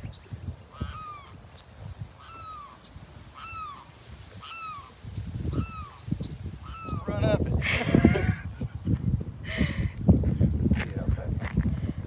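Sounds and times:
wind rumbling on microphone: 0.0s - 12.0s
bird cawing: 0.7s - 1.4s, 2.2s - 6.0s, 6.6s - 7.1s.

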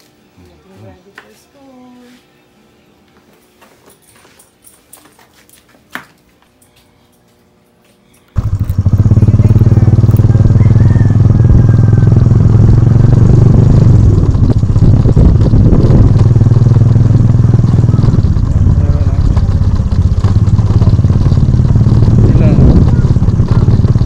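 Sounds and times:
motorcycle engine running: 8.3s - 24.0s.

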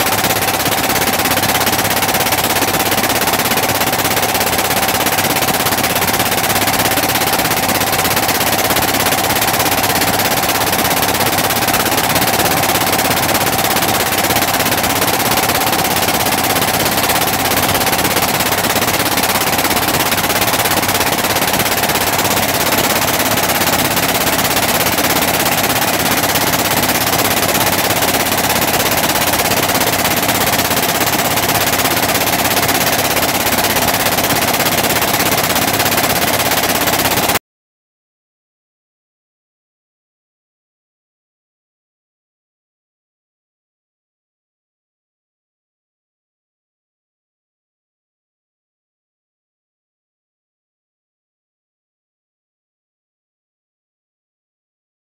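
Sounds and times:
boat engine chugging: 0.0s - 37.4s.

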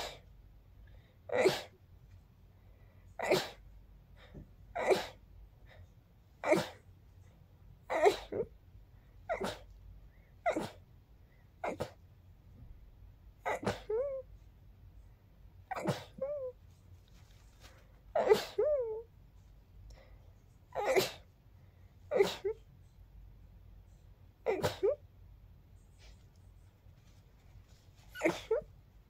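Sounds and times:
person sneezing: 1.3s - 1.8s, 3.2s - 3.6s, 4.8s - 5.2s, 6.4s - 6.9s, 7.9s - 8.5s, 9.3s - 9.8s, 10.4s - 10.9s, 11.6s - 12.0s, 13.5s - 14.0s, 15.7s - 16.3s, 18.2s - 18.8s, 20.8s - 21.3s, 22.1s - 22.6s, 24.5s - 25.0s, 28.1s - 28.7s.

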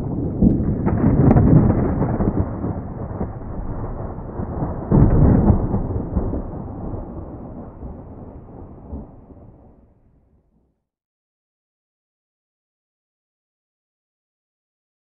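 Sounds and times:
deep rumbling boom: 0.0s - 9.6s.

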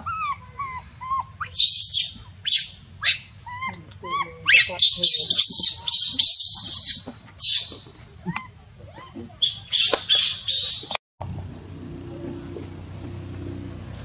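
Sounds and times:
monkeys screaming: 0.0s - 11.0s
low steady background hum: 0.0s - 14.0s.

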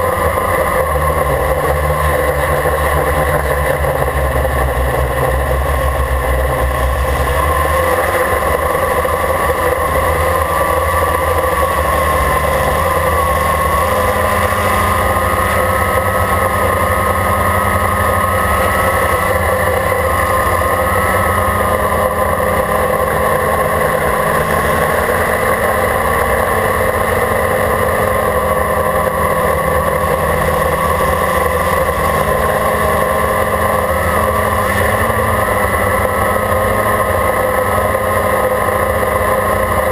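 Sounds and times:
quadcopter propellers buzzing: 0.0s - 39.9s.

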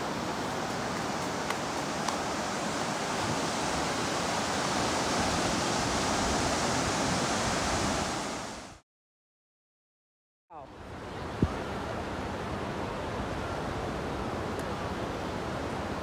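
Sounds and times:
ocean surf: 0.0s - 8.8s
wind: 0.0s - 8.8s, 10.5s - 16.0s.

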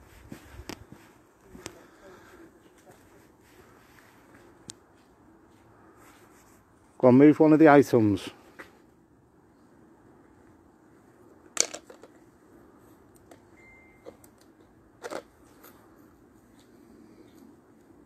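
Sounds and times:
faint high beep: 13.5s - 14.3s.

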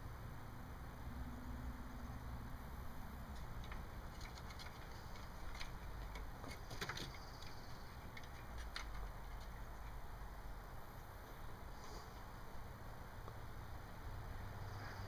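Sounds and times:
low steady rumble: 0.0s - 15.0s
cat claws scratching on wood: 3.3s - 10.0s.

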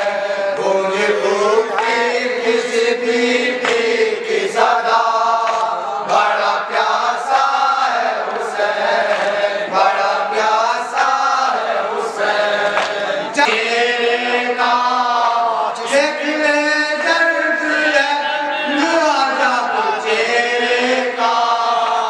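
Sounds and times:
men chanting in chorus: 0.0s - 22.0s
man singing into microphone: 9.7s - 22.0s.

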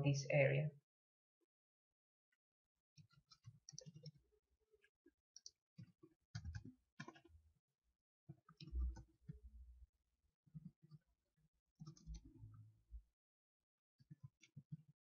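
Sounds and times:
keyboard typing clicks: 6.4s - 7.2s.

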